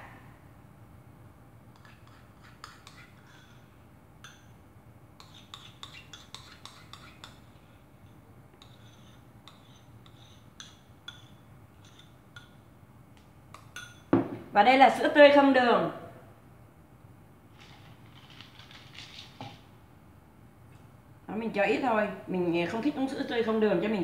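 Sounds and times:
metal spoon clinking in cup: 13.5s - 14.1s.

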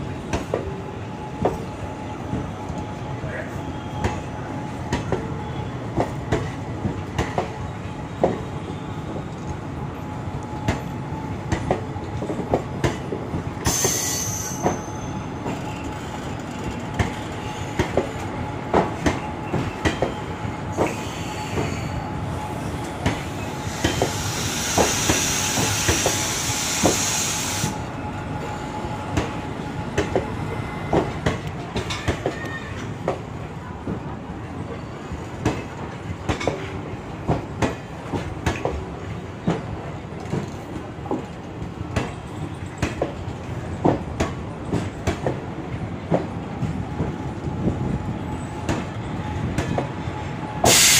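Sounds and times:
train rumble: 0.0s - 50.9s
train wheels clicking over rail joints: 22.8s - 27.8s, 35.2s - 48.0s.

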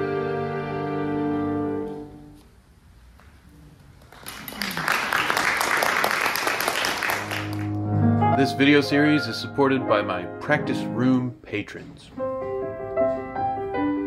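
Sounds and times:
audience applause: 3.9s - 7.8s.

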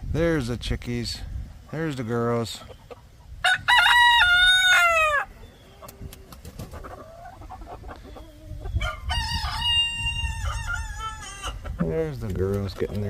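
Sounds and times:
chickens clucking: 1.2s - 13.0s
rooster crowing: 3.4s - 5.3s, 8.8s - 11.6s.

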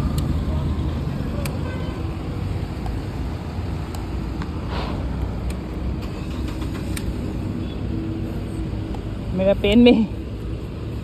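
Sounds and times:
vehicle engine rumble: 0.0s - 11.0s
brief hiss: 4.7s - 5.0s.

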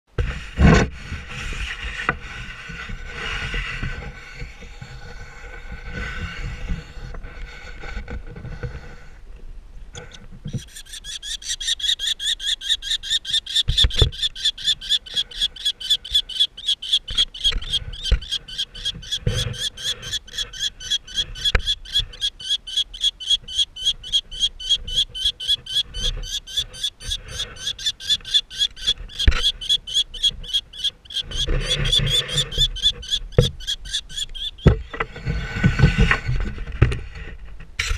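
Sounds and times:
chicks squealing calls: 10.4s - 36.4s.

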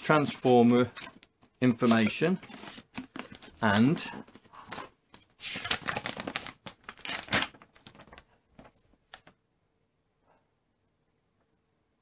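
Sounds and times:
paper rustling and crackling: 0.0s - 9.3s.

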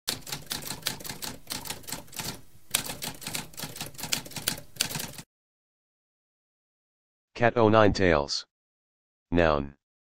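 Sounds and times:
typewriter keys clattering: 0.1s - 5.2s.

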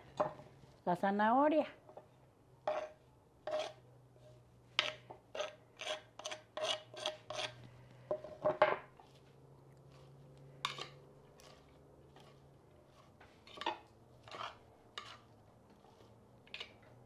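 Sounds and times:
utensil scraping wooden cutting board: 2.7s - 3.8s, 4.8s - 7.6s, 9.9s - 16.8s.

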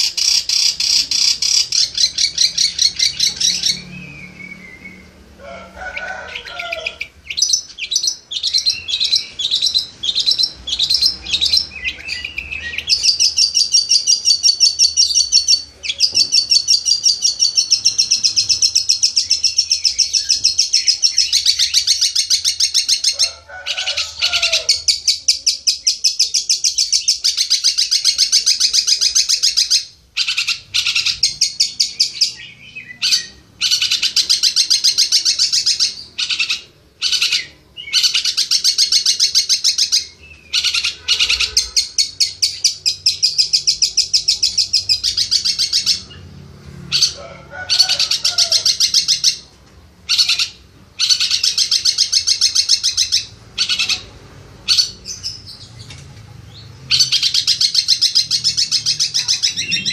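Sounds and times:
bird singing high trills: 30.2s - 46.3s.

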